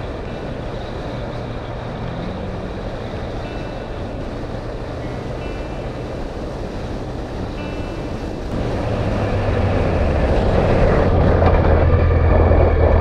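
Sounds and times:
motorcycle engine running at speed: 0:00.0 - 0:13.0
wind rush on microphone: 0:00.0 - 0:13.0.

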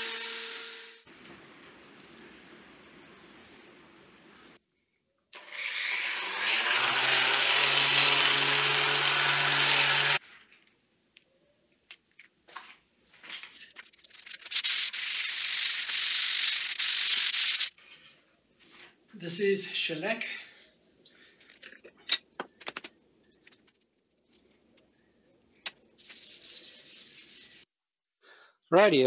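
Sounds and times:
power sander grinding wood: 0:05.4 - 0:10.2.

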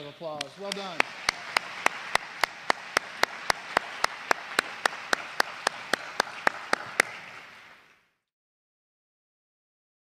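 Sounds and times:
close person clapping: 0:00.0 - 0:07.9
audience applauding: 0:00.0 - 0:08.0.

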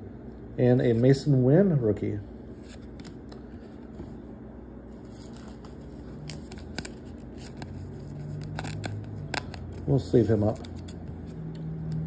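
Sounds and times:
faint low hum: 0:00.0 - 0:12.0
card rustling in plastic sleeve: 0:02.5 - 0:04.2, 0:04.9 - 0:12.0
sharp plastic crinkles: 0:04.9 - 0:11.0.

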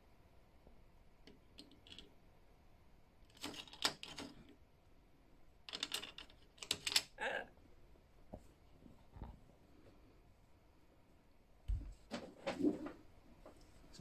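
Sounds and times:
toy figures clattering on tiles: 0:05.7 - 0:07.2.

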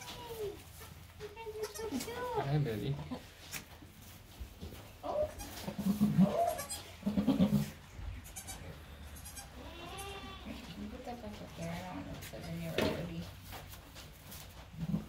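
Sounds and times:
goat bleating: 0:01.5 - 0:02.1, 0:05.0 - 0:10.8.

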